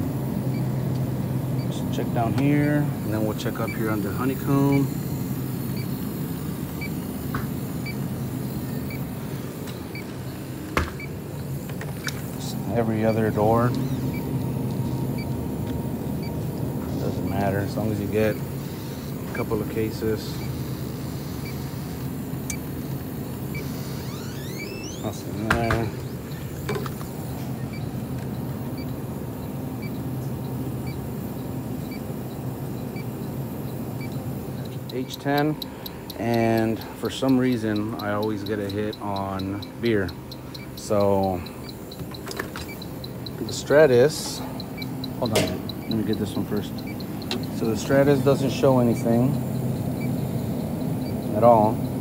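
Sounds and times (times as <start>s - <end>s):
freezer cases humming: 0.0s - 52.0s
leak detector short high beeps: 5.7s - 5.9s, 13.6s - 15.4s, 42.6s - 52.0s
faint high beeps: 30.8s - 52.0s.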